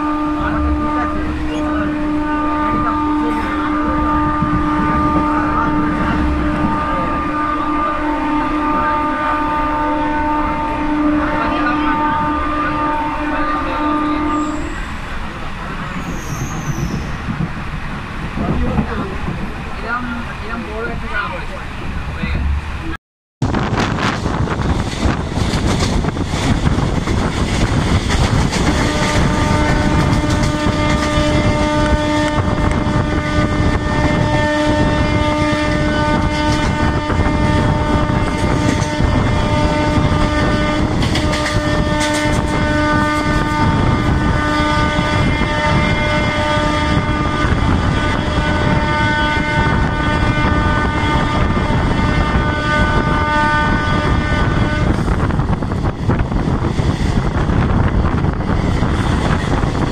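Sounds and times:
train horn long blast: 0:00.0 - 0:15.1, 0:25.9 - 0:56.3
train wheel noise: 0:00.0 - 0:59.9
wind rushing: 0:03.8 - 0:08.4, 0:21.8 - 0:59.9.

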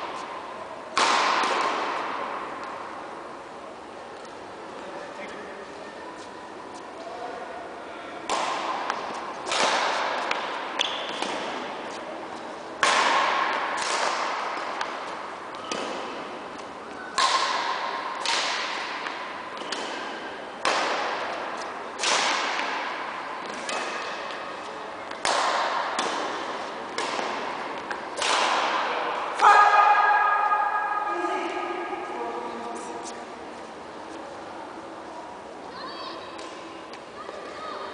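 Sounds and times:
rackets striking shuttlecock: 0:00.9 - 0:02.8, 0:08.2 - 0:12.0, 0:12.8 - 0:30.6.

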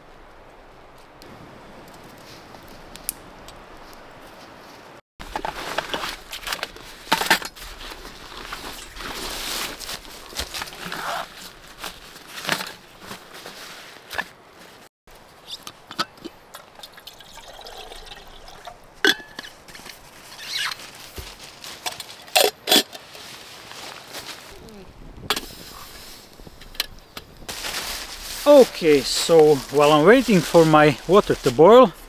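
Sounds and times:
water pouring into a pot: 0:16.5 - 0:18.8.

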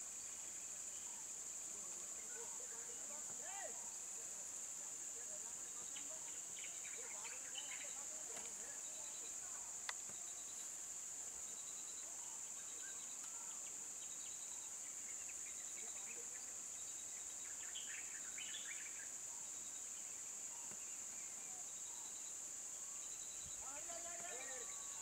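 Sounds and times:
chirps: 0:11.5 - 0:25.0
high-pitched insect drone: 0:21.4 - 0:25.0.

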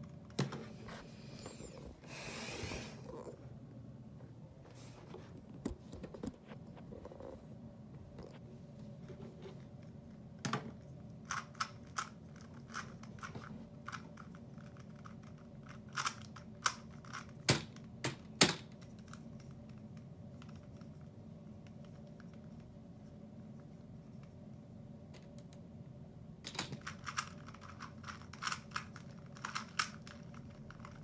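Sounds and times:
low room hum: 0:00.0 - 0:31.0
plastic puzzle cube clicking: 0:26.5 - 0:31.0.

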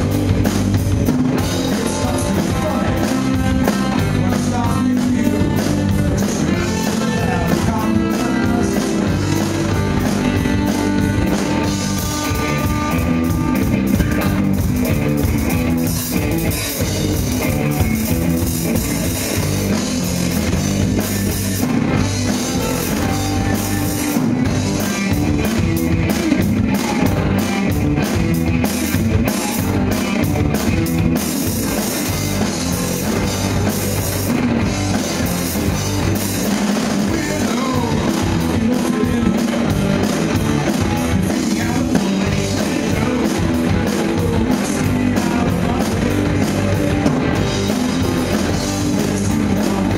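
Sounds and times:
live rock band playing: 0:00.0 - 0:49.9.

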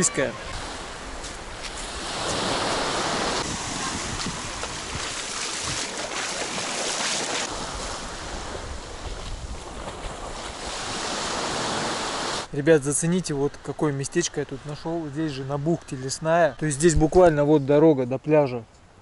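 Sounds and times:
small waves breaking on beach: 0:00.0 - 0:12.5.

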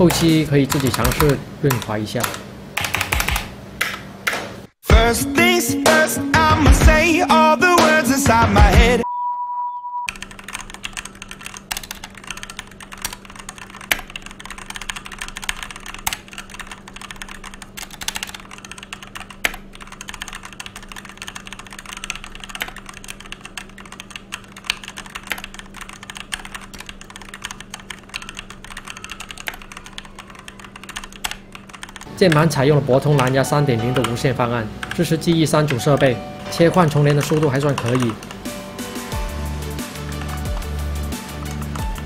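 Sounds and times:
mechanical keyboard typing: 0:00.0 - 0:04.0, 0:10.1 - 0:32.5, 0:34.8 - 0:35.9, 0:36.7 - 0:38.4, 0:39.9 - 0:40.7, 0:41.3 - 0:42.0
steady test beep: 0:09.0 - 0:10.1.

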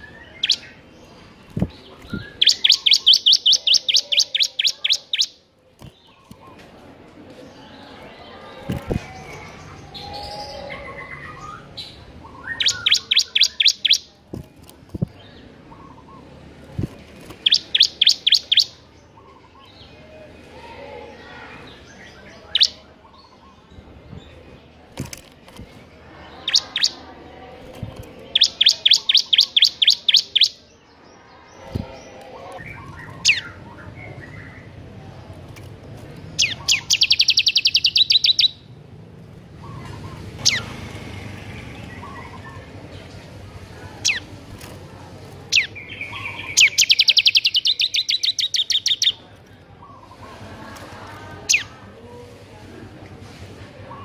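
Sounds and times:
bird rapid high chirps: 0:00.0 - 0:00.8, 0:01.6 - 0:05.4, 0:09.2 - 0:14.1, 0:17.4 - 0:18.8, 0:22.5 - 0:23.4, 0:26.3 - 0:27.0, 0:28.3 - 0:30.6, 0:36.4 - 0:38.7, 0:45.5 - 0:49.2.

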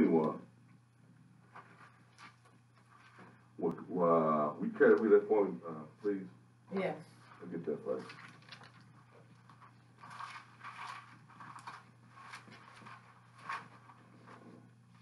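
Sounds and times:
low hum: 0:00.0 - 0:15.0
pages rustling: 0:01.5 - 0:03.4, 0:07.2 - 0:15.0.

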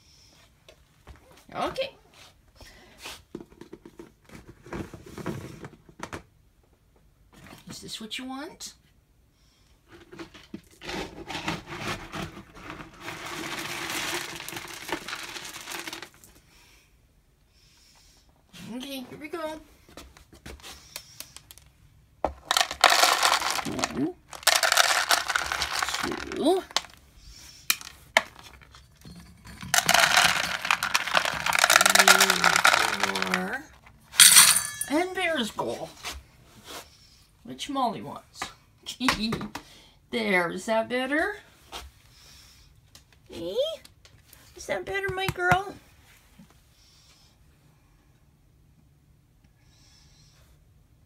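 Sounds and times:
bag crinkling and rustling: 0:11.7 - 0:16.3, 0:22.4 - 0:27.0, 0:29.5 - 0:33.4
kibble rattling into bowl: 0:13.0 - 0:16.2, 0:22.4 - 0:27.0, 0:28.2 - 0:33.6, 0:34.2 - 0:35.0.

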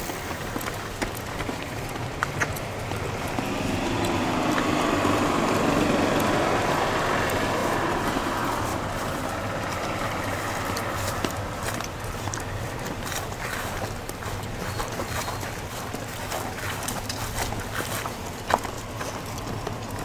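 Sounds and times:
car driving past: 0:01.9 - 0:12.0.

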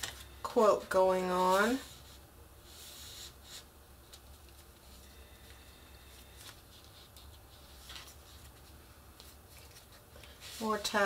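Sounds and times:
paper pages rustling: 0:06.1 - 0:11.0.

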